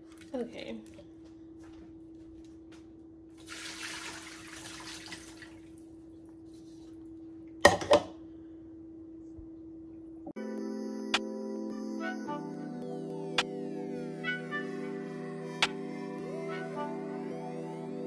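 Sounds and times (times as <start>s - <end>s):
water running into sink: 3.4s - 5.8s
low hum: 5.6s - 18.0s.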